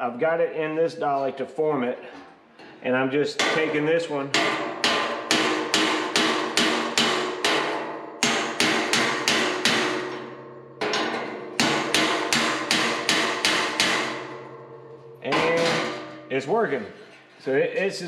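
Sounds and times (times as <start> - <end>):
hammer striking metal: 3.4 - 16.6.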